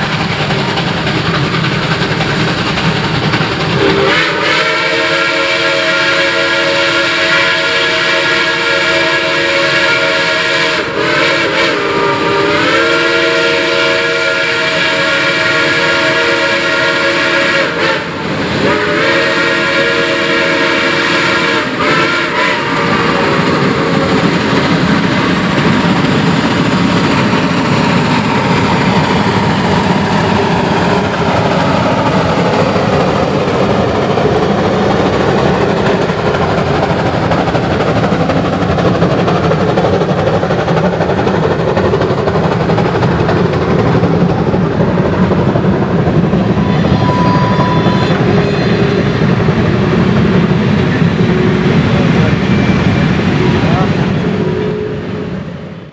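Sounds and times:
steam locomotives running: 0.0s - 55.9s
steam whistle chord: 3.8s - 23.5s, 46.6s - 49.2s, 54.4s - 55.3s.

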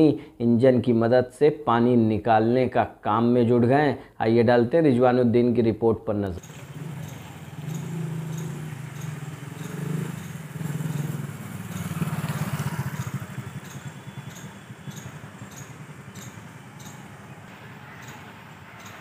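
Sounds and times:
small engine running: 6.4s - 19.0s.

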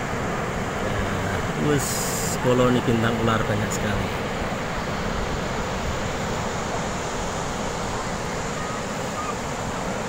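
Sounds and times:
sea surf: 0.0s - 10.0s
wind: 0.0s - 10.0s.

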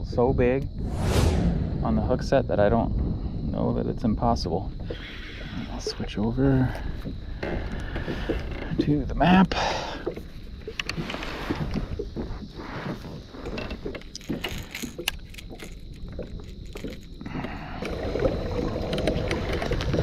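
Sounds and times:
wind on microphone: 0.6s - 8.4s
water lapping against hull: 3.0s - 20.0s
small clicks and knocks: 13.5s - 17.2s.

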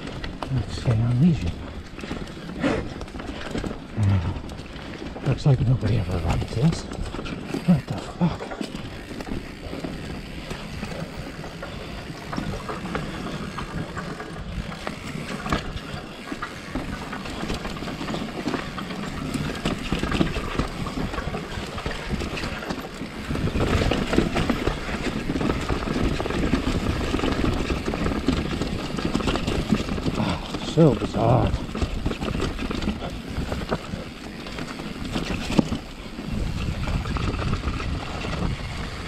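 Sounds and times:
bike rattling: 0.0s - 39.0s
bike tyres knocking over rocks: 8.5s - 39.0s.

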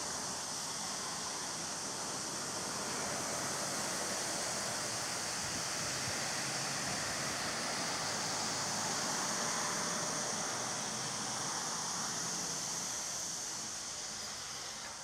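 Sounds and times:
rushing outdoor background noise: 0.0s - 15.0s.

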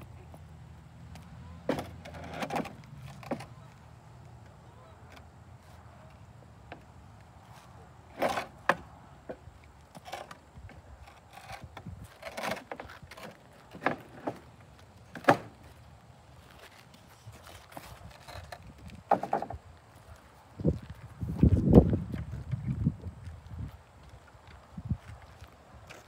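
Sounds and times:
wooden boards knocking and clattering: 15.1s - 15.5s, 19.1s - 19.6s.

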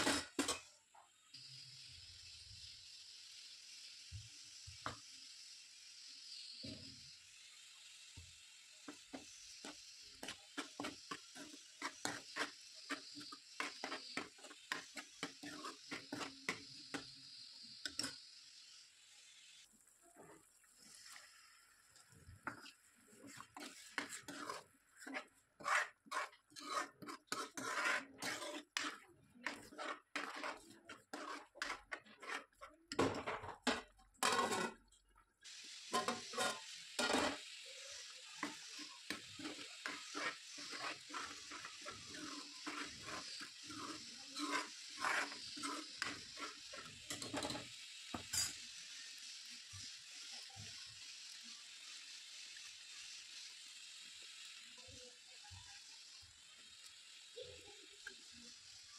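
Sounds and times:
spoon knocking and scraping a pan: 0.0s - 1.1s, 4.1s - 5.1s, 8.2s - 18.3s, 22.0s - 48.8s
frying sizzle: 0.0s - 58.9s.

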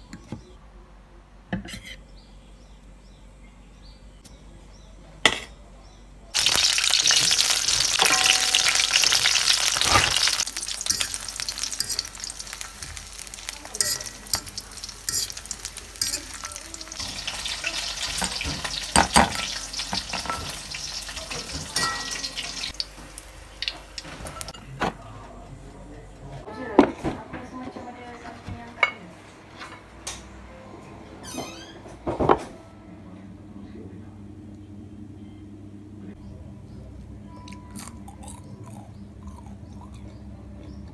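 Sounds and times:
fries sizzling in hot oil: 6.4s - 24.6s
metal spatula scraping a wok: 10.2s - 12.2s, 13.8s - 16.4s.

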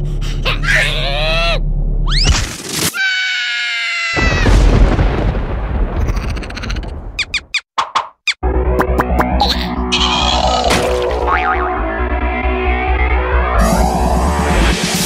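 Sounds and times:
cartoon character screaming: 0.5s - 2.3s, 2.9s - 4.6s
cartoon falling squeal: 0.6s - 4.6s, 6.0s - 7.6s
loud boom with rumble: 4.2s - 6.2s.

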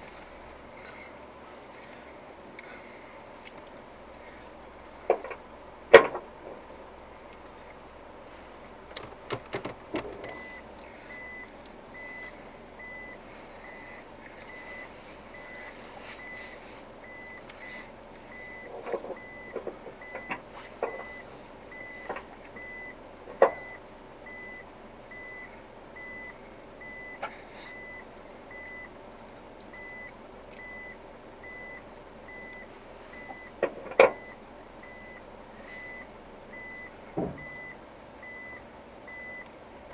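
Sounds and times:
sharp knocks and clunks: 5.1s - 6.3s, 37.2s - 37.6s
vehicle warning chime beeping: 10.2s - 29.0s, 29.7s - 39.5s.

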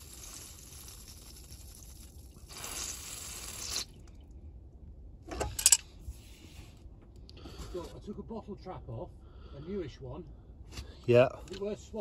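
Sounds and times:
water spitting: 0.0s - 4.3s.

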